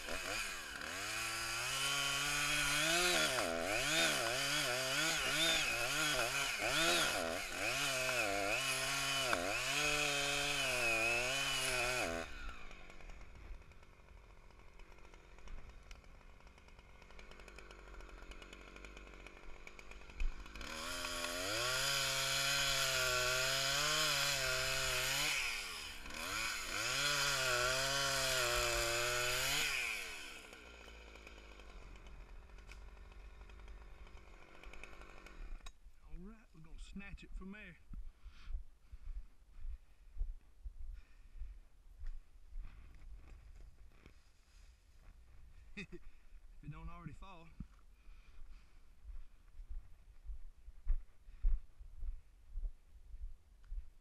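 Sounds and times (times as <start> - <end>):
chainsaw cutting wood: 0.0 - 37.6, 42.7 - 44.6.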